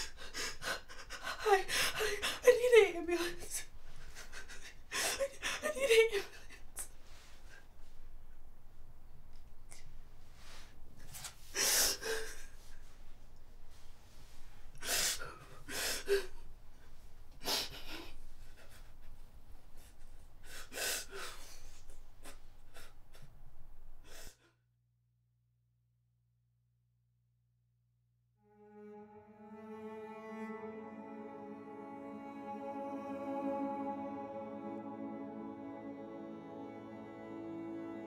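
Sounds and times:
woman sobbing: 0:00.0 - 0:06.8.

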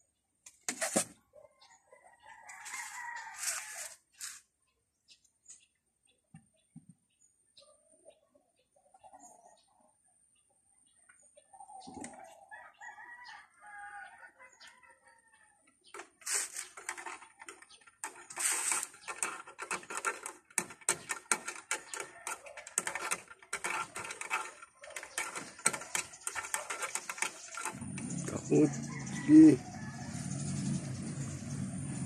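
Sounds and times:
cat scratching wooden table leg: 0:16.0 - 0:28.1.

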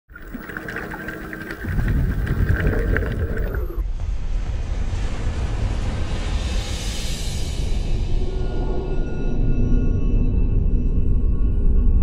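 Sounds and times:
crackling: 0:00.1 - 0:03.8
deep rumble: 0:00.2 - 0:03.8.

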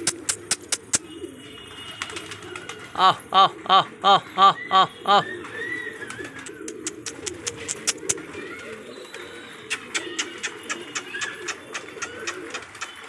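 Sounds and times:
sharp clicks: 0:00.0 - 0:01.1, 0:06.4 - 0:08.2
pigeons cooing: 0:00.0 - 0:13.0
short high pigeon calls: 0:00.0 - 0:13.0.

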